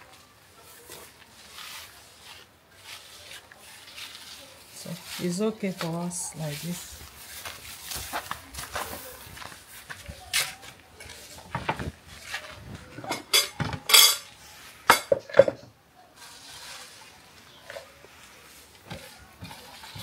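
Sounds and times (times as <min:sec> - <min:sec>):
kitchenware knocking and clinking: 0:13.0 - 0:14.3, 0:14.9 - 0:15.7.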